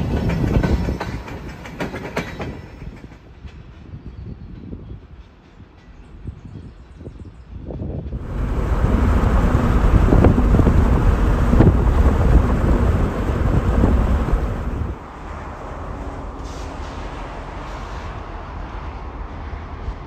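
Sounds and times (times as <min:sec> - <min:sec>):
wind buffeting microphone: 0:06.2 - 0:15.0
vehicle rumble: 0:08.1 - 0:16.4.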